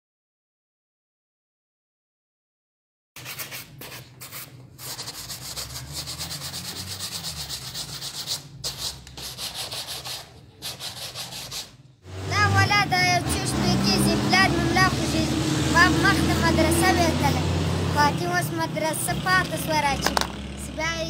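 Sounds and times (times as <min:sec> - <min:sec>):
hand rubbing scrubbing rasp: 0:03.2 - 0:11.7.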